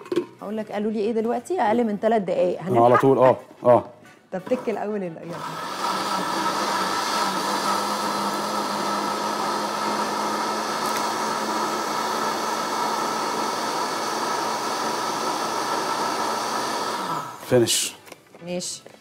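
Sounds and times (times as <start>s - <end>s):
electric blender whining: 4.5s - 17.5s.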